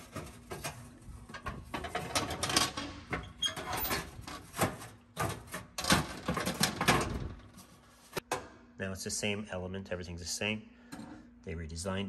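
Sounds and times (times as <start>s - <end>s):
metallic scraping and rattling: 0.0s - 7.8s.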